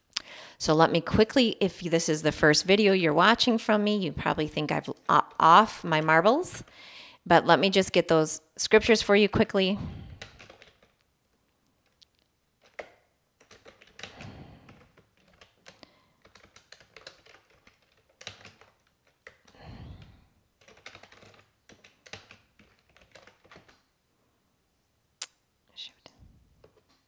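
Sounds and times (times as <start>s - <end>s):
typing on computer keyboard: 10.1s - 11.0s, 12.6s - 19.6s, 20.6s - 23.9s.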